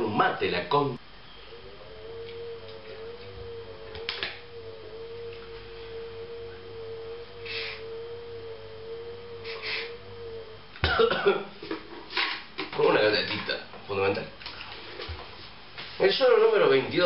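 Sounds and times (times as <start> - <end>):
steady wavering tone: 0.0 - 12.4.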